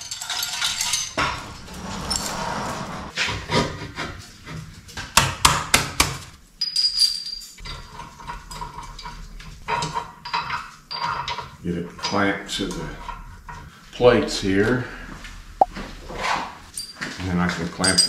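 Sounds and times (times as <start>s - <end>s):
metal clanks and clinks: 0.0s - 3.1s, 6.6s - 13.7s, 16.7s - 18.0s.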